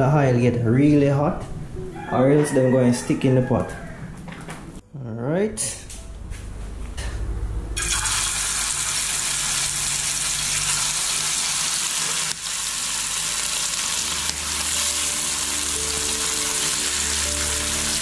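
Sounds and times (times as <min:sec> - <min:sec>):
fish frying in hot oil: 0:07.8 - 0:18.0.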